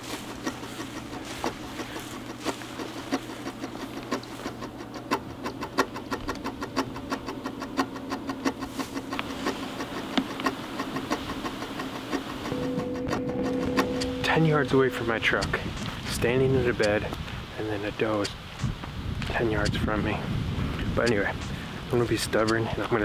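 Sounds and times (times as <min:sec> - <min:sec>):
footsteps through dry grass: 0:00.0 - 0:04.8.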